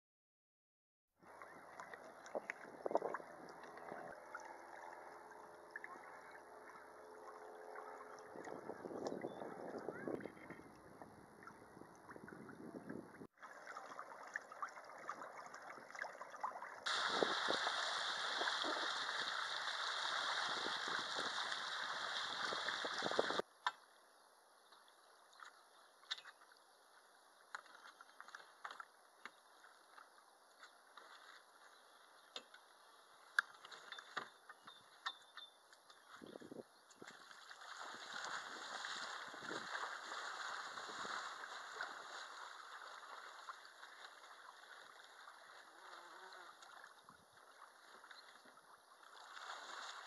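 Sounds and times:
small splashes: 0:01.2 - 0:23.4, 0:36.1 - 0:50.0
rushing water: 0:01.2 - 0:23.5, 0:36.9 - 0:50.0
gentle water lapping: 0:01.2 - 0:50.0
wind: 0:01.2 - 0:50.0.

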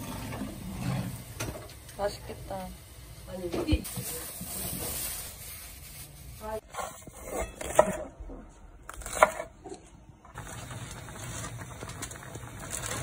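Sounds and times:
sauce bubbling in a frying pan: 0:10.3 - 0:13.0.

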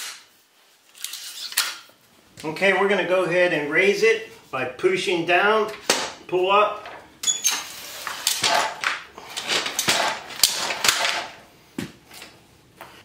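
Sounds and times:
metal stand rattling and clanking: 0:06.8 - 0:11.4.

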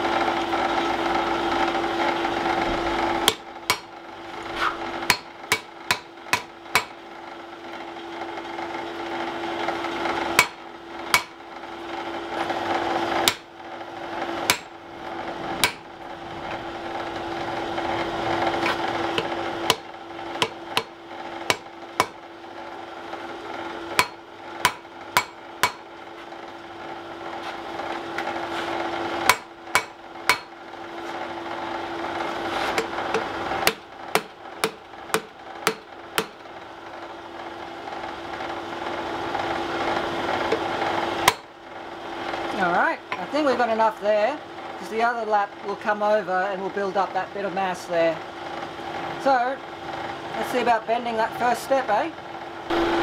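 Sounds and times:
steady hum: 0:00.8 - 0:07.3, 0:09.0 - 0:37.0
hammer striking metal on anvil: 0:03.3 - 0:03.9, 0:05.1 - 0:07.0, 0:10.4 - 0:11.4, 0:13.2 - 0:13.5, 0:14.5 - 0:14.8, 0:15.6 - 0:15.9, 0:18.6 - 0:22.2, 0:24.0 - 0:25.9, 0:29.3 - 0:30.6, 0:32.8 - 0:36.4, 0:41.2 - 0:41.5.

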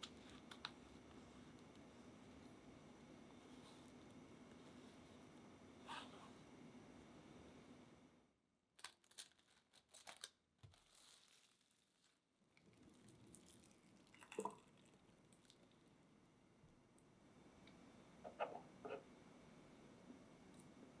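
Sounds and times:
cling wrap crinkling: 0:08.8 - 0:14.1.

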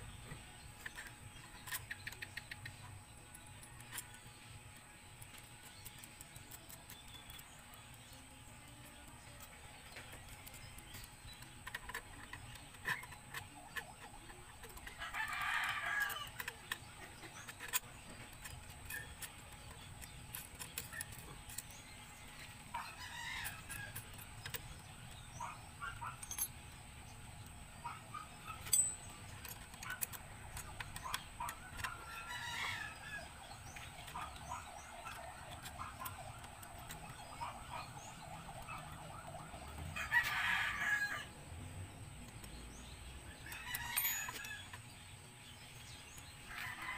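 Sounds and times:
rooster crowing: 0:15.0 - 0:16.4, 0:22.8 - 0:24.0, 0:31.8 - 0:33.4, 0:39.6 - 0:41.4, 0:43.4 - 0:44.7, 0:46.5 - 0:46.9.

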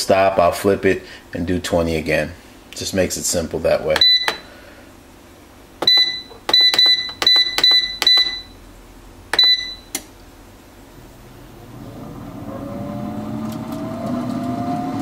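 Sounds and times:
air fryer control panel beeping: 0:04.0 - 0:04.4, 0:05.8 - 0:08.6, 0:09.4 - 0:10.0.

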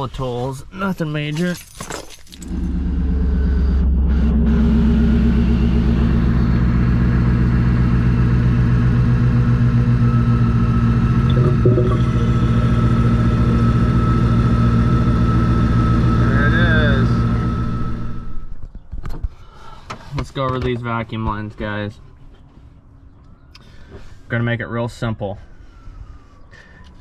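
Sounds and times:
engine idling: 0:02.4 - 0:18.5
thin steady whine: 0:02.4 - 0:18.5.

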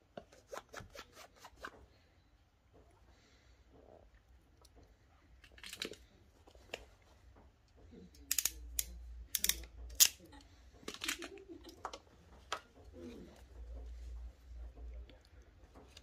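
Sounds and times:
wires and plastic plugs rustling: 0:04.6 - 0:16.0
crimping tool clicking: 0:08.2 - 0:10.3.

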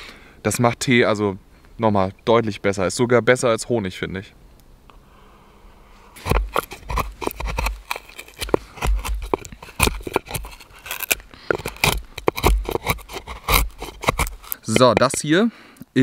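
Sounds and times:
gouge scraping wood: 0:06.1 - 0:15.3.

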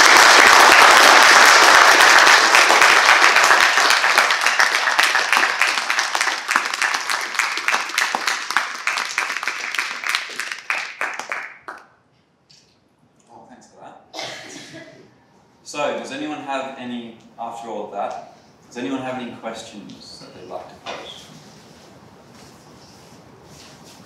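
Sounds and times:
audience applauding: 0:00.0 - 0:11.9.

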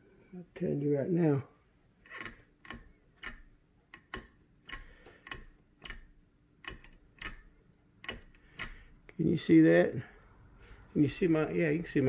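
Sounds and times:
wrench clicking on rifle screw: 0:02.1 - 0:08.9.

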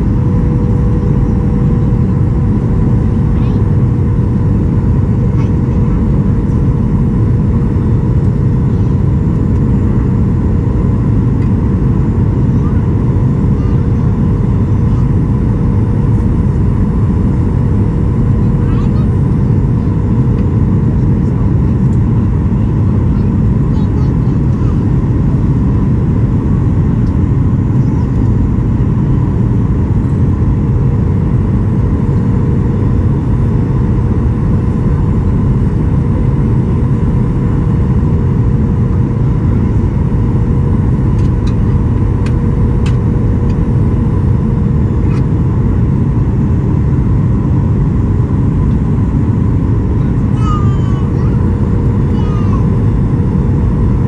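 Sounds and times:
airplane cabin airflow and engines: 0:00.0 - 0:54.0
steady cabin hum: 0:00.0 - 0:54.0.

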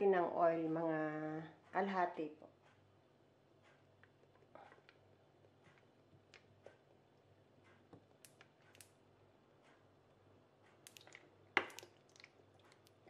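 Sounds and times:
oil pouring clicks and ticks: 0:10.8 - 0:13.0.

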